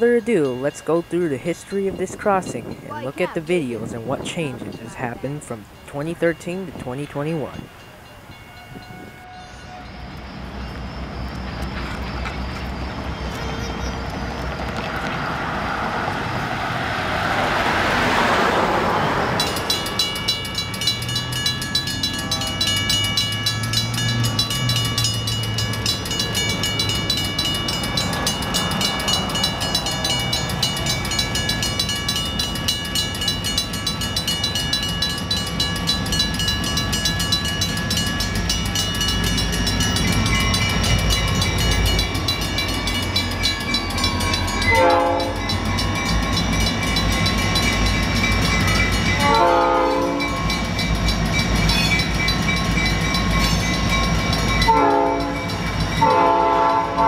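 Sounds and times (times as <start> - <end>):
railroad crossing bell ringing: 0.0 - 15.1, 17.6 - 57.0
approaching train rush: 0.0 - 57.0.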